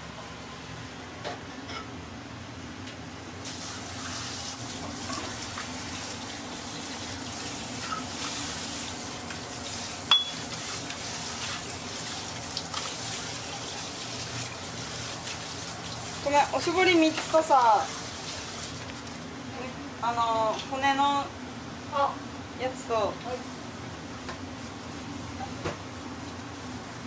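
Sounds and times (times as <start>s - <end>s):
sharp ringing clink: 10.1s - 10.4s.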